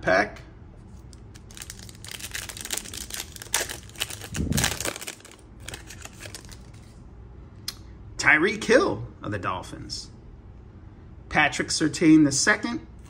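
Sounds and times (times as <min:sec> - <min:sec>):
foil wrapper tearing and crinkling: 0:01.3 - 0:06.8.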